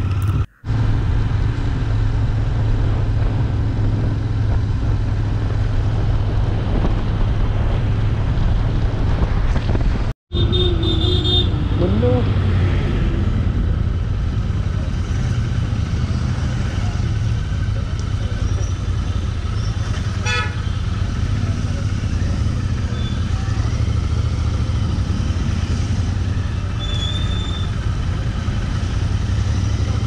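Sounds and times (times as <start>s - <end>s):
wind rumble: 0.0s - 17.8s
horn toot: 10.3s - 12.2s, 20.1s - 20.8s
motorcycle engine running: 13.5s - 30.0s.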